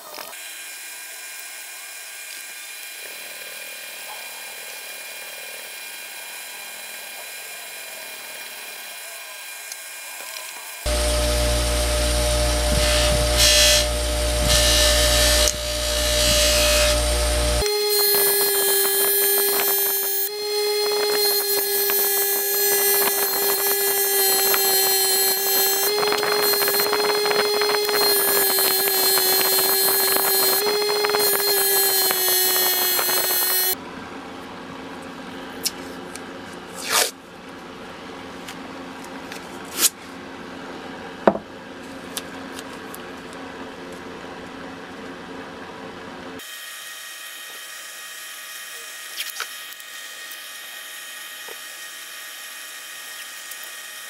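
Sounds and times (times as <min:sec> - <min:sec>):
bench grinder humming: 0:10.7 - 0:33.8.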